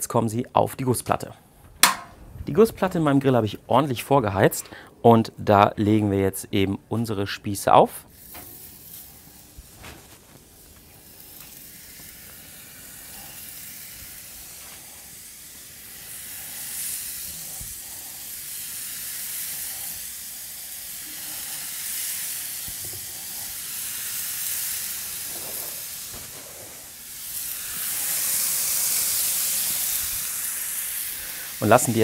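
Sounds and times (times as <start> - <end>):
skewers knocking on metal plate: 1.8 - 2.2
meat sizzling on a griddle: 8.1 - 32.0.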